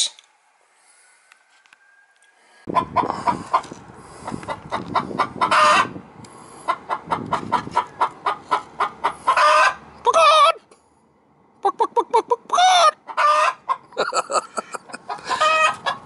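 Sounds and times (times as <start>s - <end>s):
rooster clucking: 2.6s - 10.6s, 11.6s - 16.0s.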